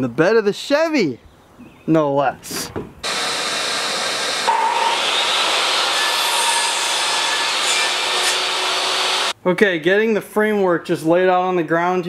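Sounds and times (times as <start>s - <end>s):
table saw cutting board: 3.1s - 9.3s.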